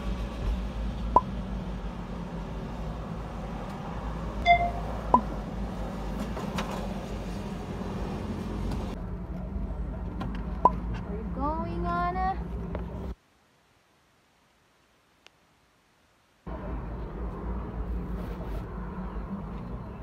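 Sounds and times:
low hum inside car: 0:00.0 - 0:13.2
brief beep: 0:04.4 - 0:04.8.

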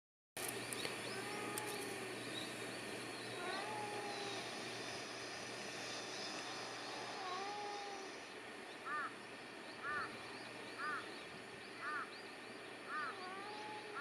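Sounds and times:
steady low hum: 0:00.4 - 0:14.0
cats meowing: 0:01.1 - 0:02.1, 0:03.3 - 0:04.6, 0:06.8 - 0:08.3, 0:12.9 - 0:14.0.

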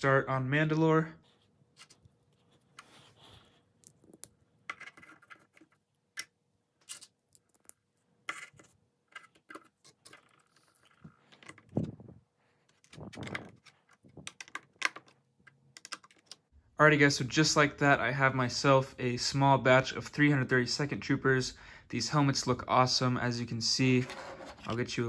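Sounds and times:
plastic toy parts clicking: 0:12.8 - 0:16.4.

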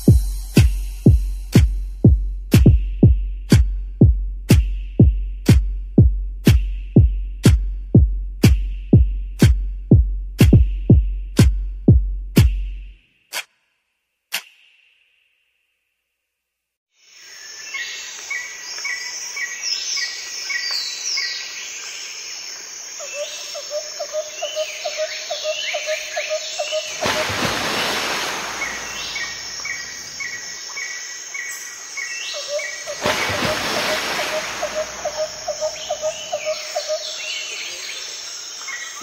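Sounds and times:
rushing noise: 0:27.0 - 0:30.1
small birds chirping: 0:28.0 - 0:39.0
low pulsing bird trill: 0:34.2 - 0:37.5.

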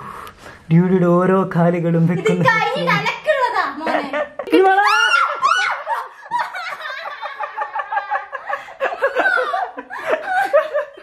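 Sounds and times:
people laughing: 0:03.8 - 0:11.0
people exclaiming: 0:04.5 - 0:06.1.

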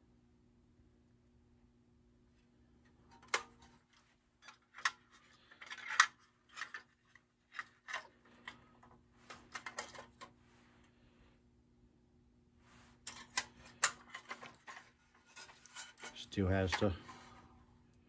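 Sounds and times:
toy truck metal clicks and scrapes: 0:04.4 - 0:08.6, 0:13.1 - 0:17.0.

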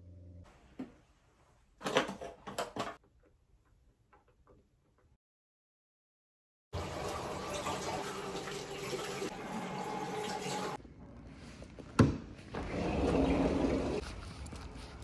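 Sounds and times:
glass sliding door opening: 0:12.6 - 0:14.0.

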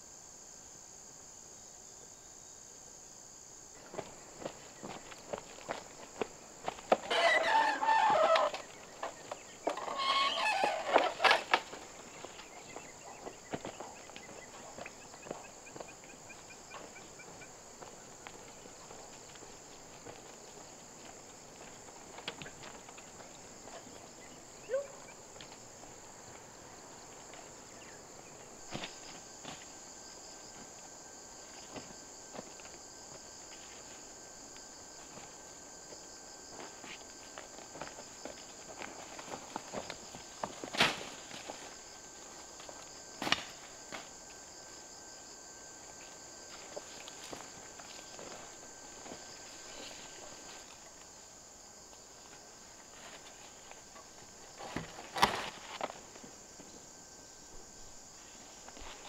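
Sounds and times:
insects droning: 0:00.0 - 0:59.0
footstep-like clicks and rustles: 0:03.8 - 0:24.2, 0:31.5 - 0:44.5
rooster crowing: 0:07.1 - 0:08.6.

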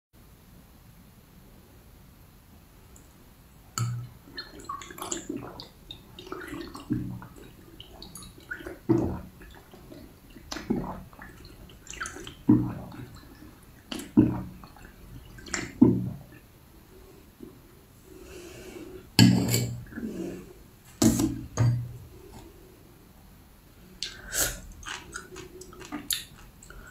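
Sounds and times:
person sipping and gulping: 0:03.8 - 0:16.5, 0:24.0 - 0:26.9.

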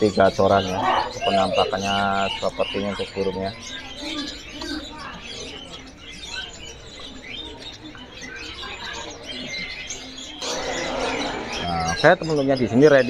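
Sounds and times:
songbirds chirping and whistling: 0:00.0 - 0:13.0.

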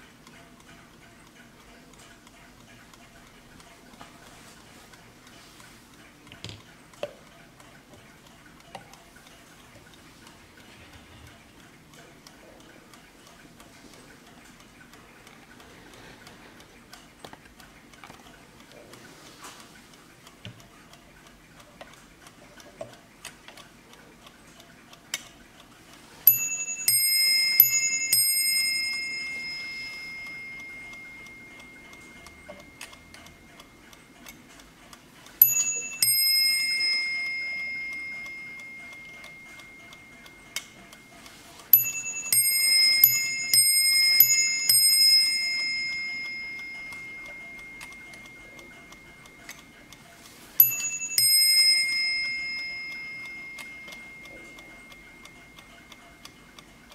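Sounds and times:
clock ticking: 0:00.0 - 0:56.9
clock striking two bells: 0:26.3 - 0:32.8, 0:35.4 - 0:40.1, 0:41.7 - 0:49.1, 0:50.6 - 0:55.3.

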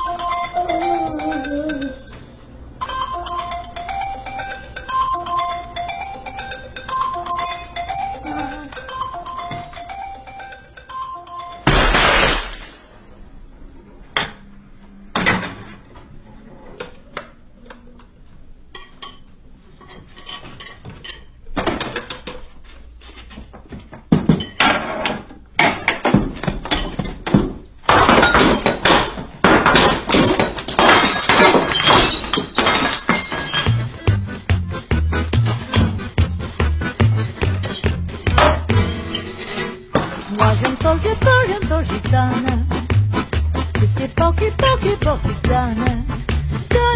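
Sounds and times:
loud crash: 0:11.7 - 0:12.9
objects knocking and clattering: 0:19.9 - 0:22.6, 0:23.6 - 0:34.6, 0:37.4 - 0:40.9.

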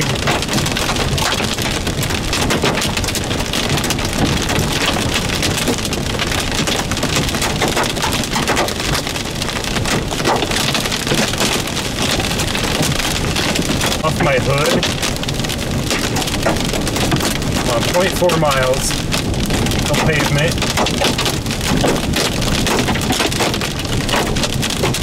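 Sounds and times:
hail and rain on vehicle roof: 0:00.0 - 0:25.0.

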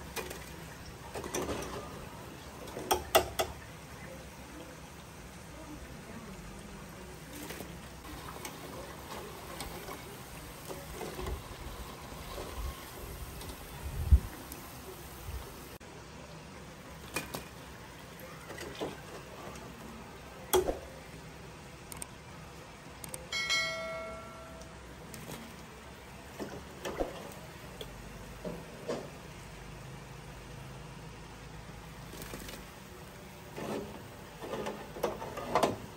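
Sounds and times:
food deep-frying in hot oil: 0:00.0 - 0:23.0, 0:24.7 - 0:35.9
bell ding notification: 0:23.3 - 0:24.8
small crackles: 0:32.0 - 0:35.6.

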